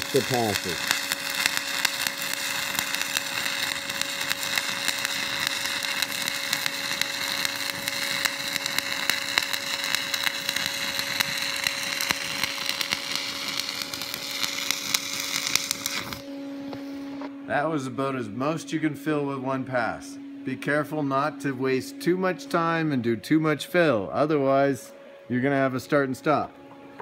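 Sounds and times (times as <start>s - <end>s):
welding arc crackling: 0.0s - 16.3s
steady hum: 0.0s - 27.0s.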